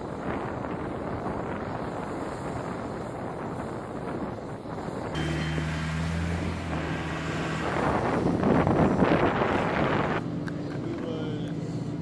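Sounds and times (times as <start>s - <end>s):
utility vehicle engine hum: 0.0s - 12.0s
loud rushing noise: 5.0s - 10.3s.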